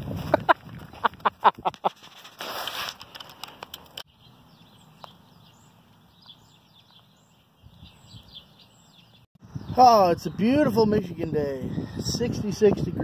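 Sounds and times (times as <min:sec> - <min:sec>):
songbirds chirping: 0:03.2 - 0:11.6.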